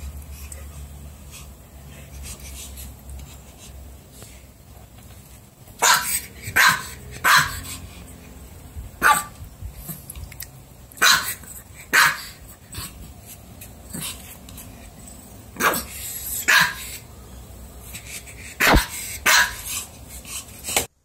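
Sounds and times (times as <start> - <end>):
puppy barking: 5.8 - 7.7, 9.0 - 9.4, 11.0 - 12.4, 15.6 - 17.0, 18.6 - 19.6.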